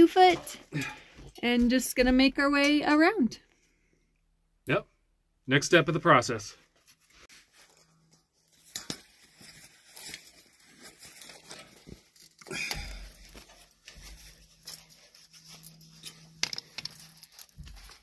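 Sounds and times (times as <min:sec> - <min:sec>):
wire and pliers scraping metal: 0:07.6 - 0:18.0.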